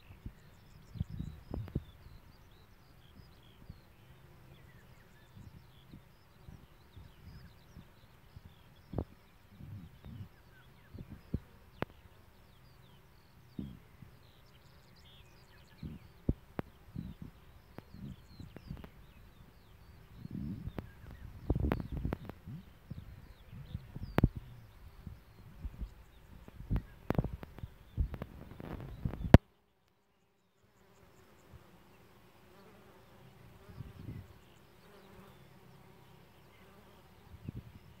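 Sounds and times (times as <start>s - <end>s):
wind rumble on microphone: 0.0s - 12.2s, 13.4s - 29.4s, 33.4s - 34.4s, 37.1s - 38.0s
small birds chirping: 0.0s - 38.0s
honeybees buzzing: 3.1s - 29.4s, 30.7s - 38.0s.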